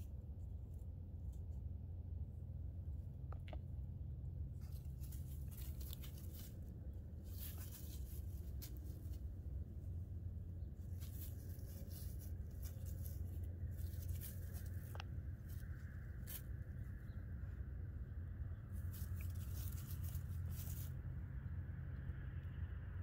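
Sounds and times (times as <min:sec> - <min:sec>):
low steady rumble: 0:00.0 - 0:23.0
dry leaves crackling underfoot: 0:04.4 - 0:17.1, 0:18.7 - 0:21.1.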